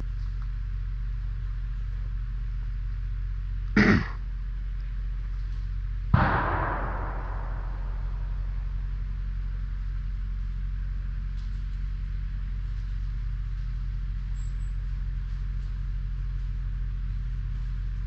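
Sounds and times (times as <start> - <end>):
steady low rumble: 6.1 - 13.7.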